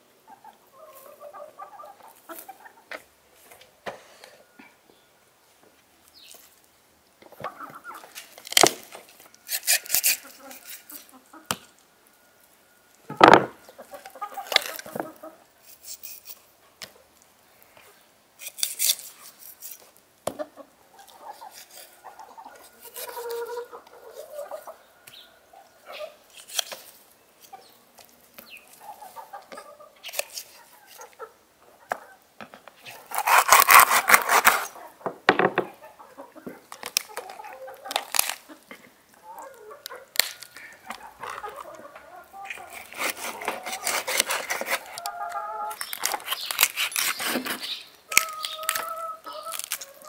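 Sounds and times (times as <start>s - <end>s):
hens clucking: 0.2s - 3.7s, 7.2s - 8.3s, 10.0s - 12.3s, 13.1s - 15.5s, 20.3s - 26.3s, 27.4s - 46.5s, 47.3s - 50.0s
knife on wooden cutting board: 42.5s - 44.9s.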